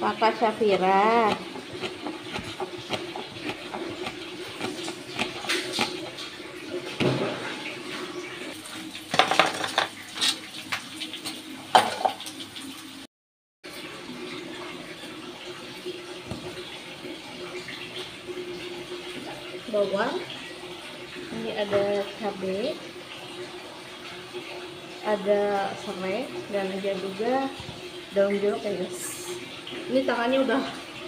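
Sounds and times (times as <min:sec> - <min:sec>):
dishes and bowls clinking: 0:09.1 - 0:10.4, 0:11.7 - 0:12.2.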